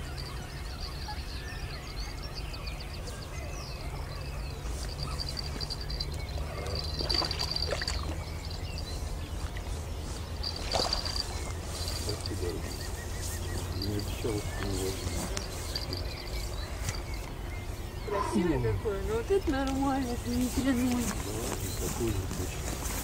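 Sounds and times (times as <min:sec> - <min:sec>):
high rapid bird trill: 0:00.0 - 0:22.8
birds singing: 0:00.0 - 0:23.0
scuffling noises: 0:04.6 - 0:17.4, 0:19.0 - 0:23.0.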